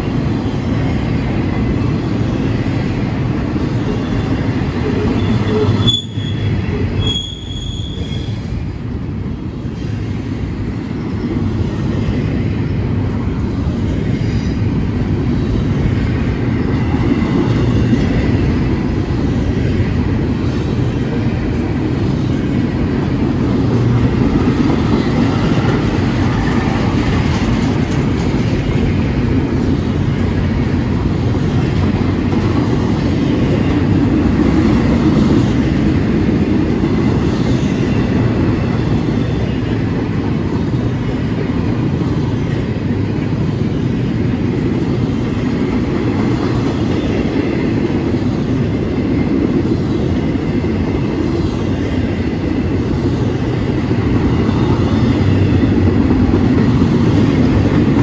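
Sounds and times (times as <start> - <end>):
train wheels rumbling on rail: 0.0 - 58.0
high-pitched wheel squeals: 4.9 - 8.5.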